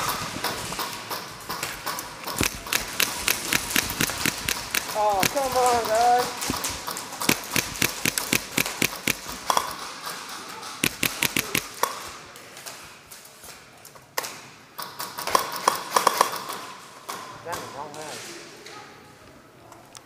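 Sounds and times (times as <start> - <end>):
airsoft gun shots: 2.3 - 9.6, 10.8 - 11.9.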